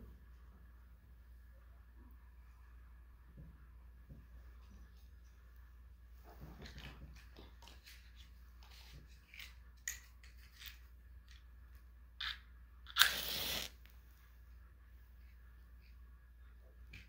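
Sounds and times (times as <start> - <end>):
match strike and hiss: 12.9 - 13.9.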